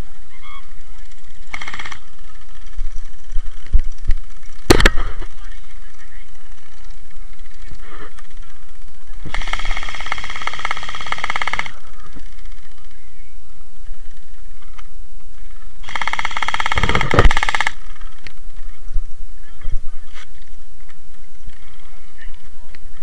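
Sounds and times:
gel blaster full-auto bursts: 1.0 - 12.8, 15.8 - 18.3.

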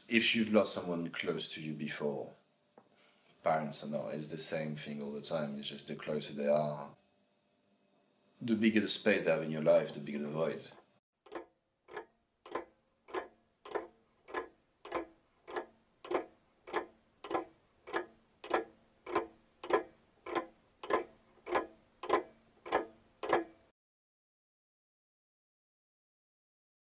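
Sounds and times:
steady ticking: 11.2 - 23.7.

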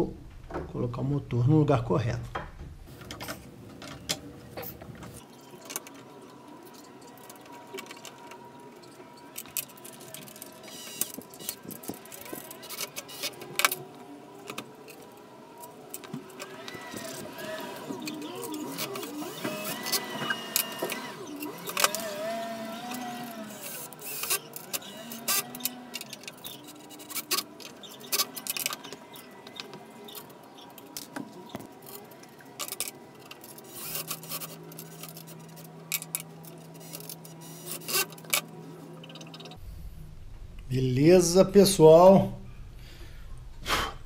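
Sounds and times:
cordless drill driving screws: 16.4 - 26.6
tools and metal parts clicking: 18.0 - 39.6
steady low hum: 39.6 - 44.0.

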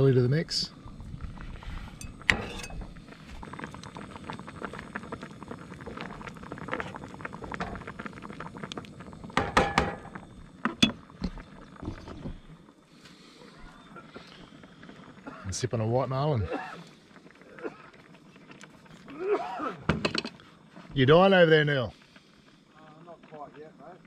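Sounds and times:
fish simmering in a frying pan: 0.0 - 24.0
cleaver tapping a pan: 9.4 - 10.1.

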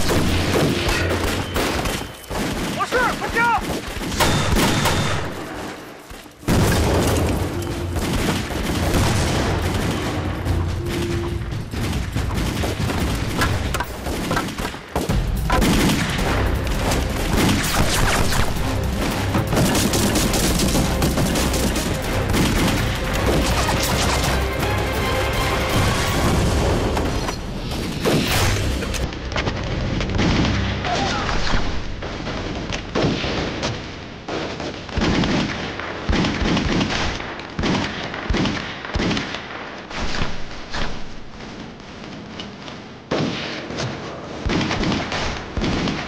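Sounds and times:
heavy gunfire: 0.0 - 5.8, 6.4 - 29.0
explosion booms: 6.5 - 13.7
background music: 6.5 - 14.3, 15.0 - 32.3.

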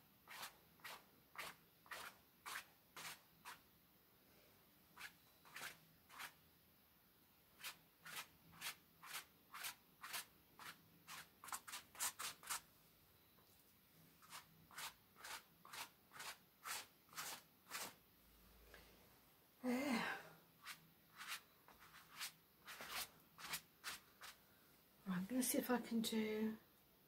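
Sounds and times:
paintbrush strokes on canvas: 0.2 - 3.6, 5.0 - 6.4, 7.6 - 12.6, 14.2 - 18.0, 20.6 - 24.4.

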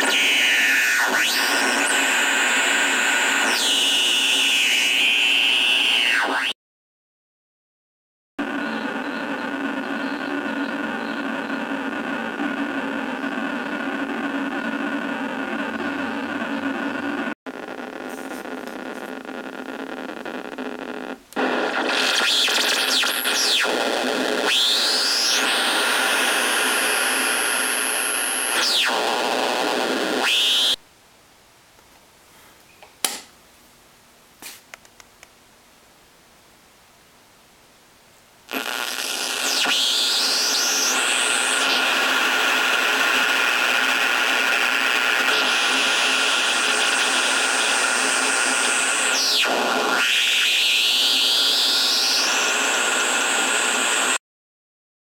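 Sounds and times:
harsh synthesizer noise with squeals: 0.0 - 6.6, 21.4 - 30.8, 38.5 - 53.8
high steady whine: 0.0 - 6.6, 8.4 - 30.8, 38.5 - 54.2
steady electronic noise: 0.0 - 6.6, 8.4 - 30.8, 38.5 - 54.2.

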